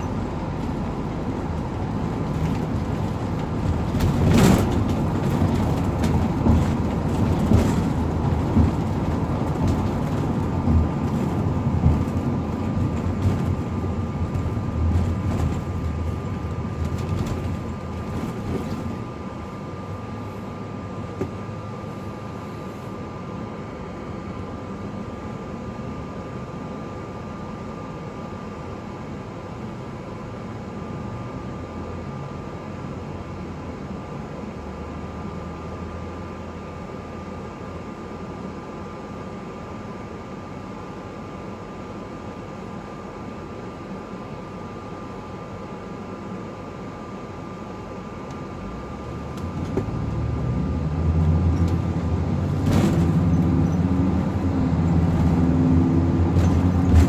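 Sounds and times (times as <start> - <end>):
rattles and bumps: 0.0 - 19.2, 51.3 - 57.0
bus engine and road rumble: 0.0 - 57.0
bus idling: 0.0 - 57.0
thin steady whine: 7.7 - 57.0.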